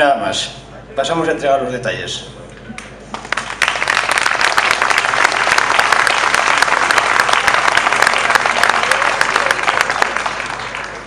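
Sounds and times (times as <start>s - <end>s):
audience applauding: 3.1s - 11.0s.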